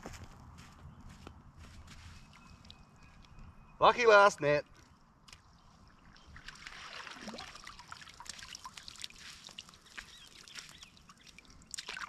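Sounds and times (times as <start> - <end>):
water trickling and splashing: 2.0 - 3.4, 4.7 - 12.0.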